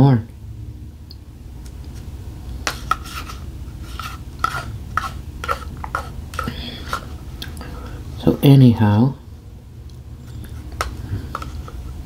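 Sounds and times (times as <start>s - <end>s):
spoon scraping and clinking bowl: 2.7s - 7.1s.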